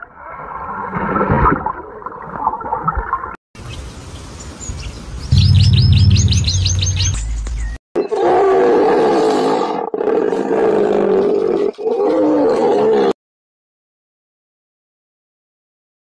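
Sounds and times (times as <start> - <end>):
high chirps: 5.3 - 7.8
loud low hum: 5.3 - 7.8.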